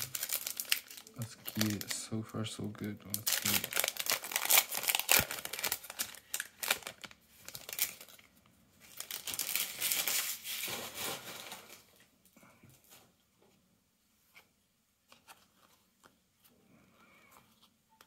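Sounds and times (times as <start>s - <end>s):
foil pack crinkling and tearing: 0.0s - 2.1s, 3.1s - 12.0s.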